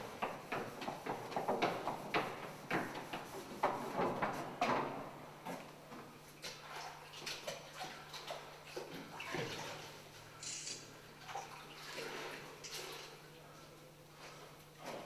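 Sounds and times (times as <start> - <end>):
wet sponge scrubbing chalkboard: 0.0 - 4.1.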